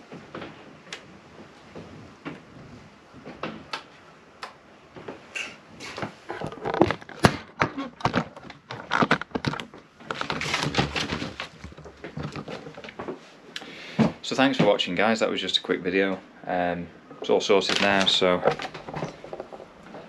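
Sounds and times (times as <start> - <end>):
rustling handling noise: 5.0 - 15.0, 17.1 - 20.0
clicks and clatter of handling parts: 5.9 - 13.2, 17.1 - 20.0.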